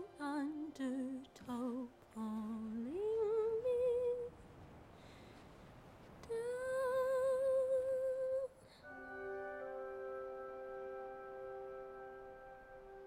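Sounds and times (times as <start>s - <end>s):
woman singing wordless notes: 0.0s - 4.4s, 6.3s - 12.0s
sustained orchestral chord: 8.8s - 13.0s.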